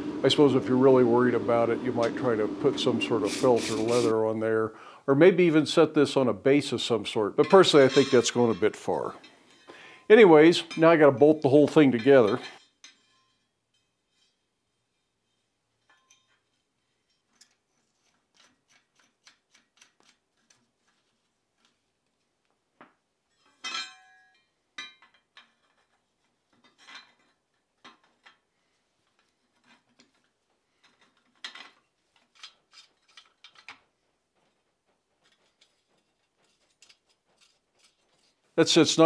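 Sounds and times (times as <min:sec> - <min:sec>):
ringing metal clank: 0:07.4 - 0:08.8, 0:12.0 - 0:14.0, 0:23.4 - 0:25.0
steel parts clinking and tapping: 0:07.4 - 0:09.7, 0:11.7 - 0:14.4, 0:15.8 - 0:20.6, 0:23.3 - 0:28.4, 0:29.1 - 0:33.8.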